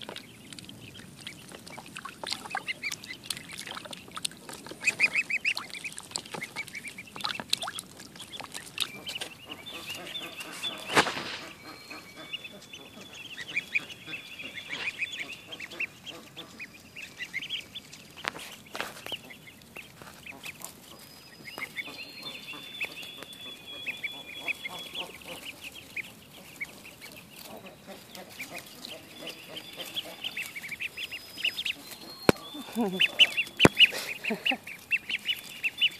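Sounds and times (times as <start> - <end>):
ducklings peeping: 0.0 - 35.9
brief sharp noises: 10.9 - 11.6.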